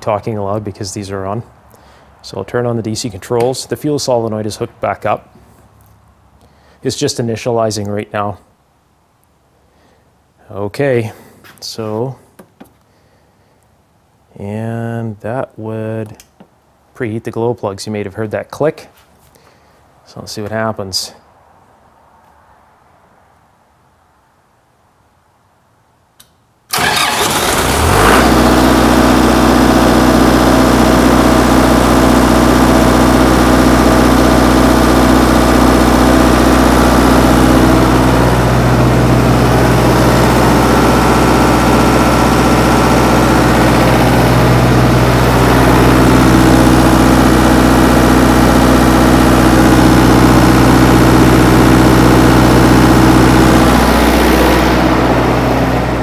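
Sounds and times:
faint click: 26.2 - 26.4
diesel generator engine running: 26.7 - 56.0.

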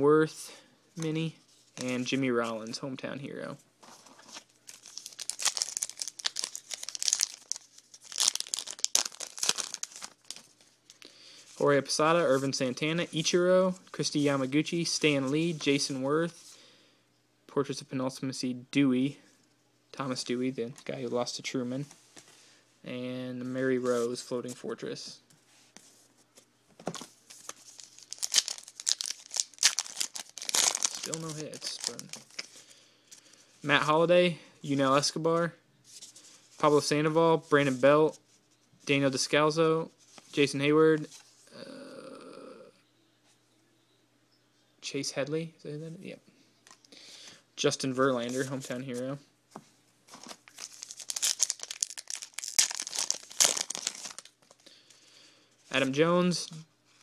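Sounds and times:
wrapper tearing and crinkling: 4.4 - 11.0, 27.4 - 32.5, 50.2 - 54.6.

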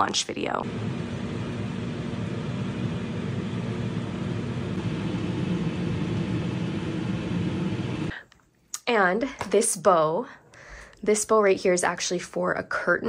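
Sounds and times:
range hood fan whirring: 0.0 - 8.2.

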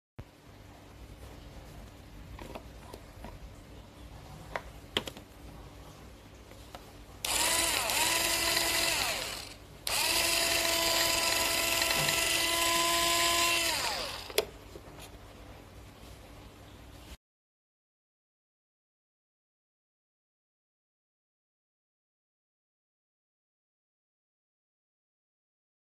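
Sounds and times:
small chopper motor whining: 7.2 - 14.4.

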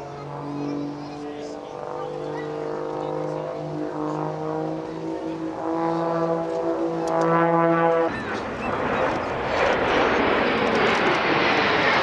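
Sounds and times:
jet aircraft rushing noise: 0.0 - 12.0
brass band playing chords: 3.2 - 8.1.

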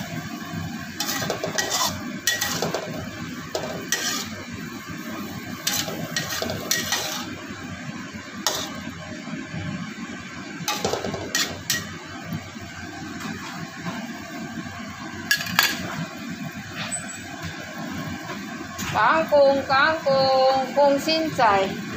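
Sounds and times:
pan sizzling: 0.0 - 21.9
spatula scraping a wok: 0.9 - 7.5, 8.4 - 8.9, 10.7 - 12.0.

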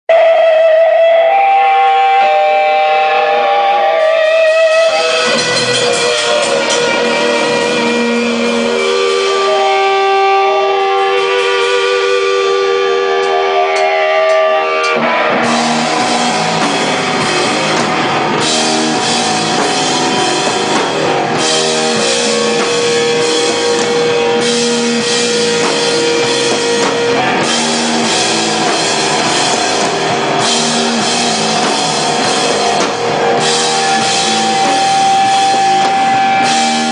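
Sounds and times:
electric guitars wavering notes: 0.0 - 36.9
loud hardcore rock band: 0.0 - 36.9
drum kit: 3.9 - 36.9.

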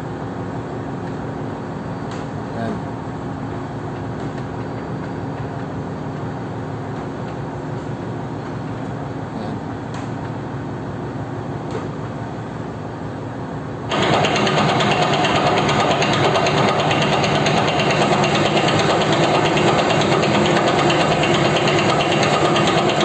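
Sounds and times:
metal lathe running: 13.9 - 23.0.

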